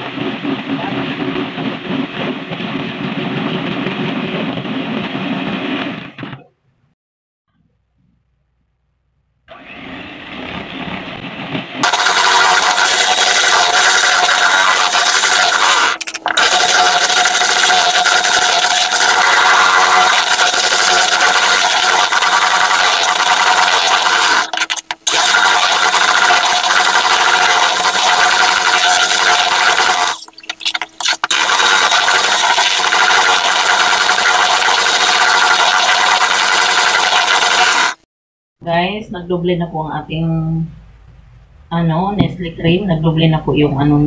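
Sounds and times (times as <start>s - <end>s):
electric hand mixer whipping cream: 9.5s - 38.0s.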